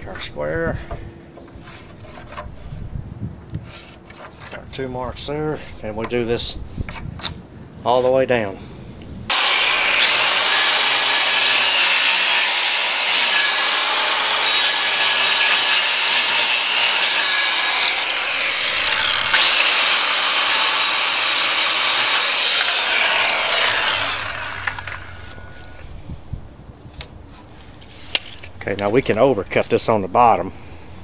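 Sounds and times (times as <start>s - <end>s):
circular saw cutting wood: 9.3s - 25.8s.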